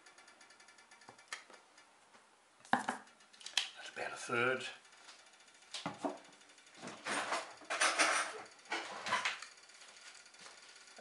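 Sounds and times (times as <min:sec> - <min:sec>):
kitchen containers clattering: 0:07.0 - 0:09.3.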